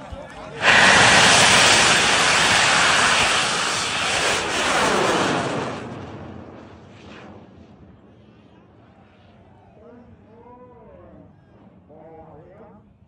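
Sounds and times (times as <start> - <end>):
rocket motor roaring: 0.5 - 7.6.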